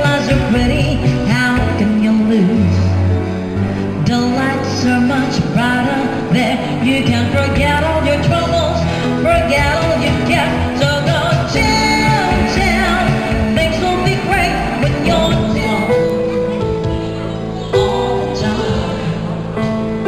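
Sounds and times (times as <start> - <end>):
woman singing pop song: 0.0 - 20.0
steady bass line: 11.6 - 17.6.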